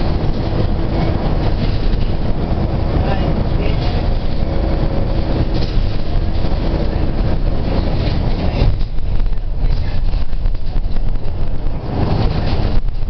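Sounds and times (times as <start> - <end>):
car road noise rumble: 0.0 - 13.0.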